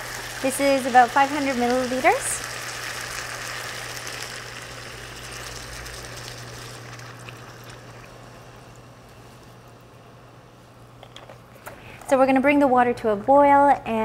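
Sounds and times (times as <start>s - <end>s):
water pouring into hot pan: 0.0s - 8.5s
chicken sizzling in pan: 0.0s - 8.7s.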